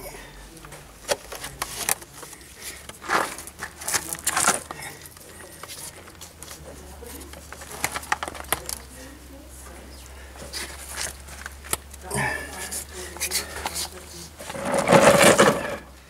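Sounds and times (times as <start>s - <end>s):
tray scraping and clicking in screed: 13.6s - 15.9s.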